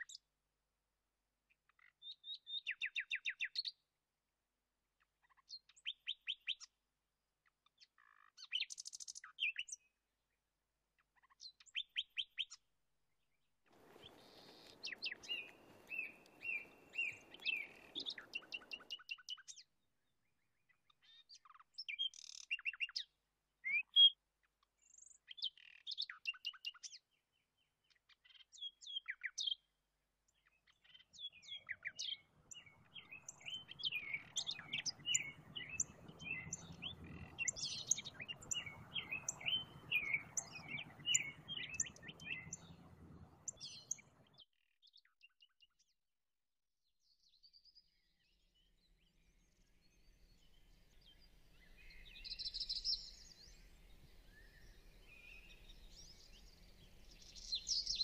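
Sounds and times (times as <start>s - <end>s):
songbirds chirping: 1.8s - 3.9s, 13.7s - 45.4s, 47.1s - 58.0s.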